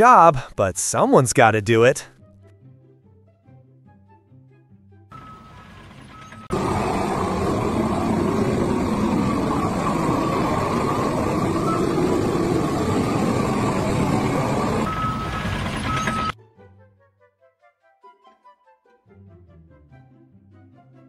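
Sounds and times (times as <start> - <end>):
propane torch roaring: 5.2 - 16.4.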